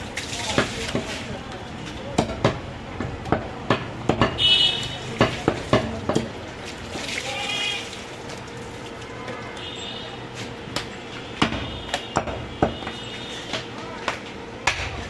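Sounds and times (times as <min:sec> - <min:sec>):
cleaver chopping on wooden block: 0:02.2 - 0:04.4.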